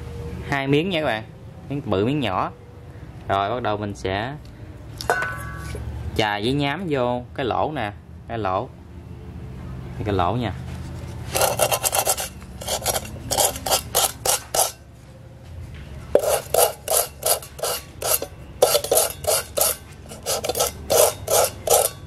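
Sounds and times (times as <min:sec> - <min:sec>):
sandpaper scraping metal pot: 0:10.8 - 0:14.8, 0:16.2 - 0:22.0.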